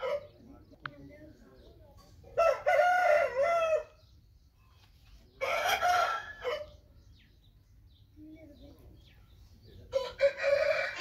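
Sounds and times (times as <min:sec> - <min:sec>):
rooster crowing: 0:02.4 - 0:04.0, 0:09.9 - 0:11.0.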